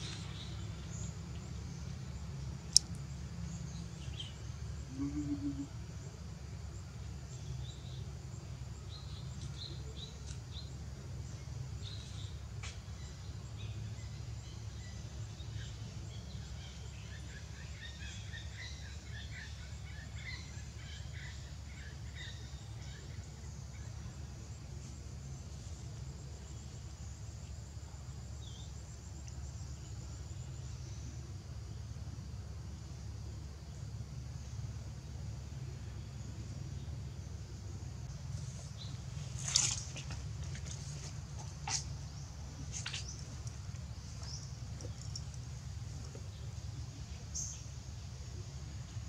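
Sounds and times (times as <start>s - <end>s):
faint high bird chirps: 2.7s - 5.8s.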